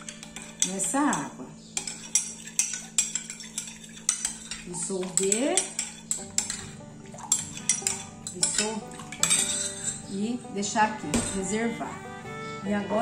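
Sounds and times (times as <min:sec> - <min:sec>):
metal spoon clinking on glass: 0:07.3 - 0:10.0.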